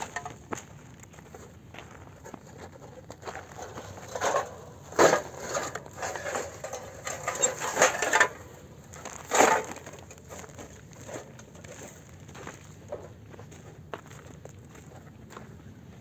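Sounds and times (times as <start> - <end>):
dry crunching and cracking: 2.2 - 13.2.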